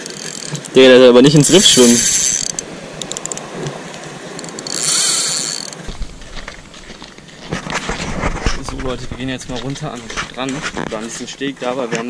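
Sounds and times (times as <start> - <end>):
fishing reel gears whirring: 0.0 - 7.2.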